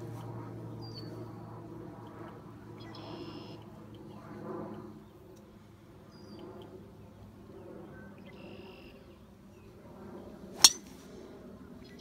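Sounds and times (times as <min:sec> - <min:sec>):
low outdoor background: 0:00.0 - 0:12.0
golf driver striking ball: 0:10.6 - 0:10.9.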